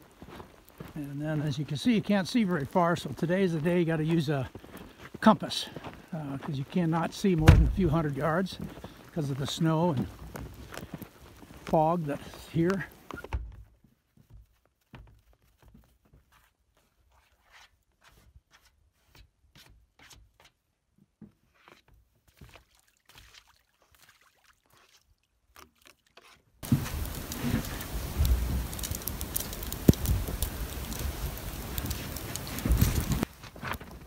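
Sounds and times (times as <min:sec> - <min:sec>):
snow brushed off boat roof: 0:26.6 - 0:28.8.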